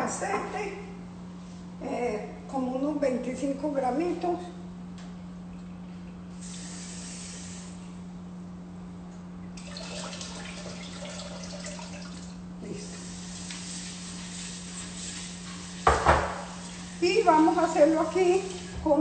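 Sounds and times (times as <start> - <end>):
steady low hum: 0.0 - 19.0
oil trickling into bowl: 9.6 - 12.4.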